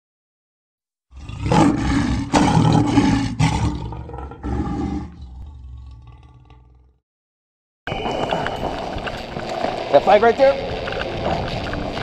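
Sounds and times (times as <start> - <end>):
lion roaring: 1.1 - 7.0.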